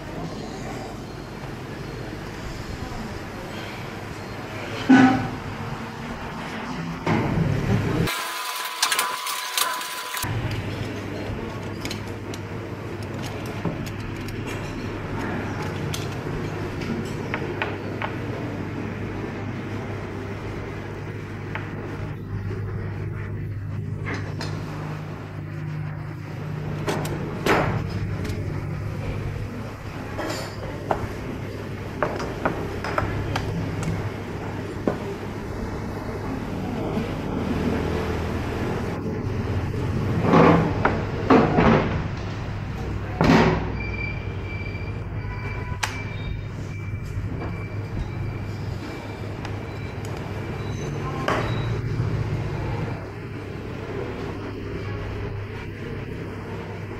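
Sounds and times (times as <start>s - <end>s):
faint voices: 0.0s - 7.0s
clinks of bowls and utensils: 30.2s - 31.0s.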